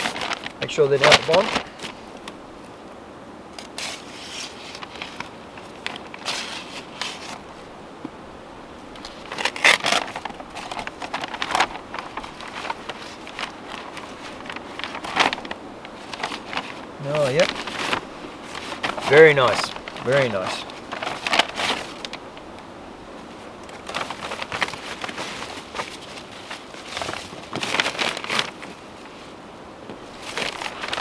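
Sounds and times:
plastic mailbag crinkling: 0.0 - 2.1, 3.6 - 7.5, 8.9 - 22.6, 23.3 - 29.1, 30.0 - 31.0.

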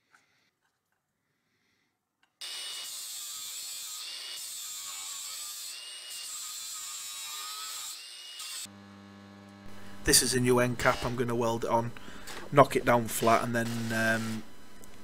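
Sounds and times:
angle grinder cutting steel: 2.4 - 11.6, 12.5 - 14.6.

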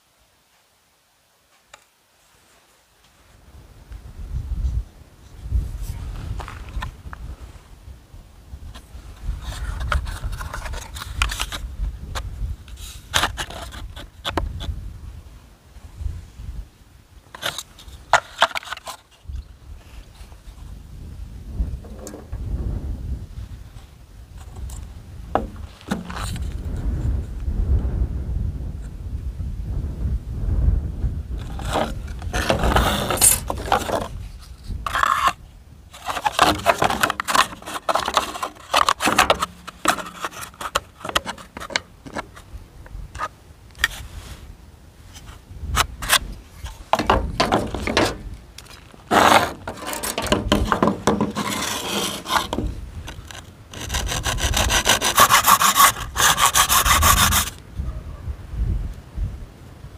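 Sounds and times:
hacksaw cutting plastic: 17.4 - 19.0, 25.9 - 26.4, 31.4 - 34.2, 34.9 - 35.4, 36.0 - 42.2, 45.8 - 57.6.

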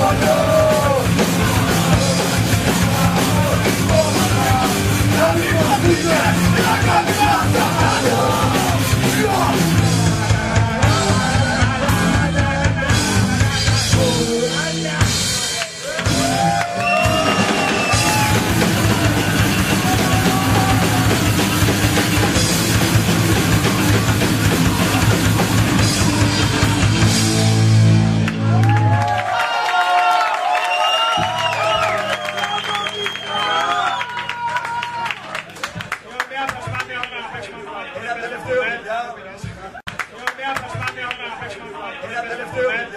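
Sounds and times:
shouted vocals: 0.0 - 13.1, 15.8 - 21.5
fast punk drum kit: 0.0 - 29.2.

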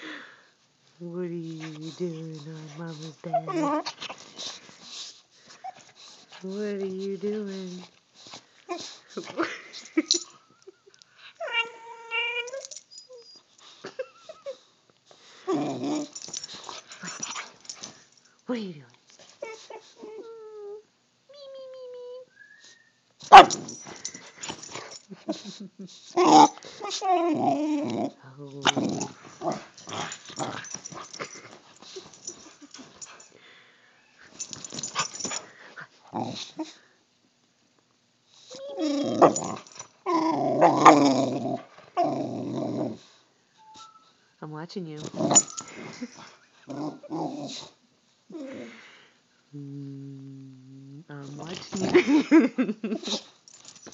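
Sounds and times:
dog moaning: 1.4 - 4.4, 11.4 - 13.3, 15.4 - 17.8, 23.4 - 33.3, 38.5 - 44.0, 45.0 - 48.8
dog whimpering: 1.5 - 4.0, 11.4 - 14.6, 19.4 - 22.3, 25.3 - 31.4, 38.5 - 41.4, 43.6 - 44.2
dog whining: 1.6 - 4.2, 11.4 - 14.6, 19.4 - 33.2, 38.5 - 43.0, 43.6 - 44.2, 45.1 - 47.7, 48.3 - 48.8.

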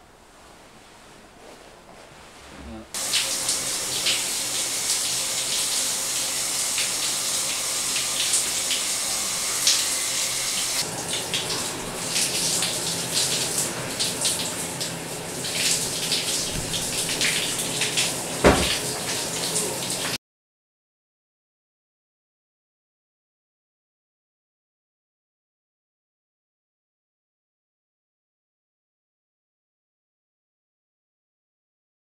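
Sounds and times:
shower water spraying: 2.7 - 20.2
thump: 18.4 - 18.8.

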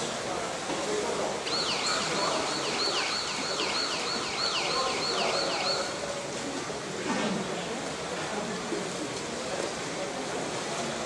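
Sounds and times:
indoor pool hall ambience: 0.0 - 11.0
electronic siren yelp: 1.4 - 6.0.

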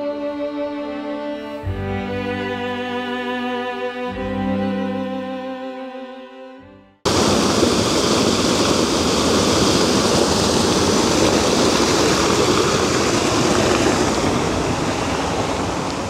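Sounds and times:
waterfall rushing: 7.1 - 16.0.

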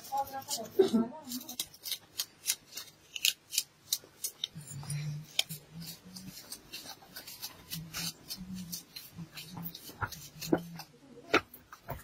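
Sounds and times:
knife cutting vegetables: 0.0 - 12.0.

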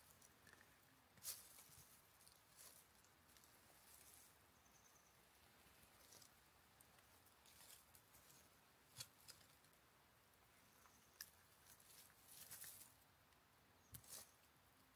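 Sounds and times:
dry leaves crackling: 1.2 - 4.3, 11.6 - 13.0.

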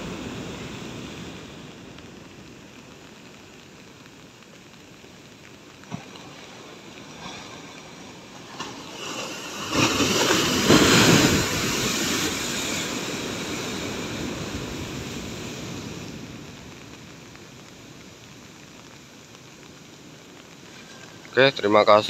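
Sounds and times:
foaming water: 0.0 - 22.0
ocean wave crashing on concrete: 8.5 - 16.1.

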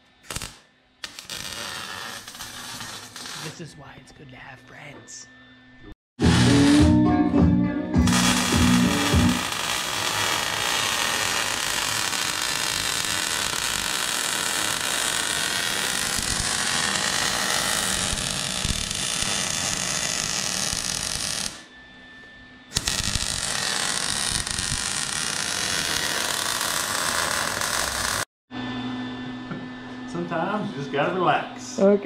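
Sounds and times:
welder arc crackling: 0.0 - 3.7, 6.2 - 7.0, 8.0 - 21.6, 22.7 - 28.3.

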